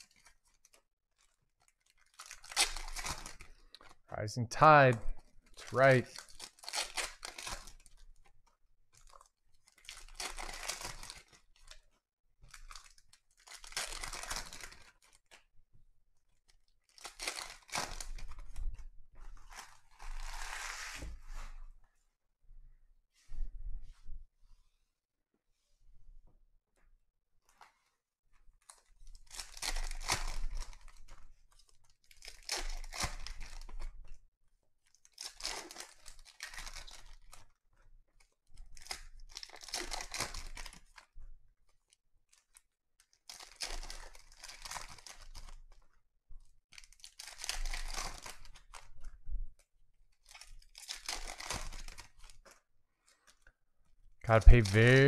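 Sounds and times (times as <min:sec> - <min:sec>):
foil card packs tearing and crinkling: 0:00.0 - 0:03.9, 0:05.6 - 0:07.9, 0:16.9 - 0:18.5, 0:29.2 - 0:31.0, 0:32.1 - 0:33.8, 0:35.1 - 0:37.4, 0:38.7 - 0:40.8, 0:43.2 - 0:45.6, 0:46.8 - 0:48.8, 0:50.3 - 0:52.3.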